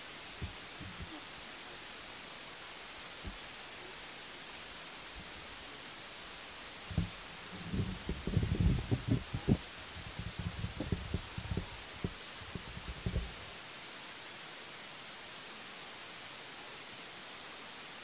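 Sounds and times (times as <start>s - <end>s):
steady hiss: 0.0s - 18.0s
thumps on microphone: 0.4s - 1.2s, 6.9s - 13.4s.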